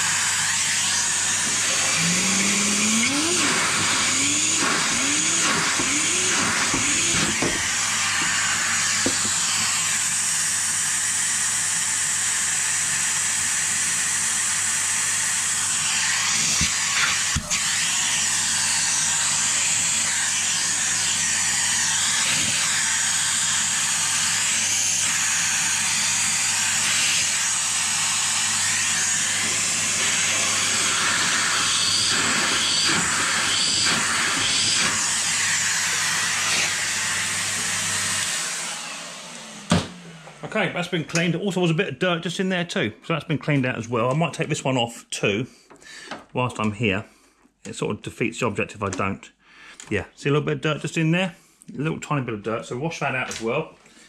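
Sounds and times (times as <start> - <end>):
nozzle sucking sludge: 0.0 - 9.3
vacuum cleaner running: 0.0 - 41.6.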